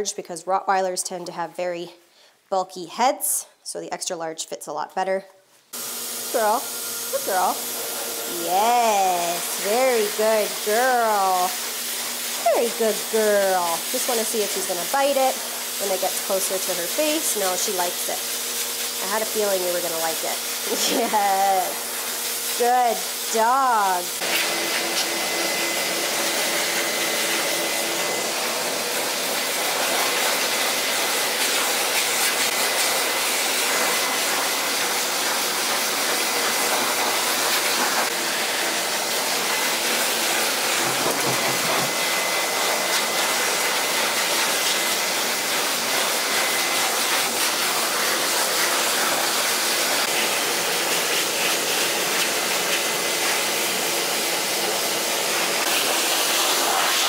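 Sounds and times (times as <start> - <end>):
blow dryer blowing air: 5.8 - 57.0.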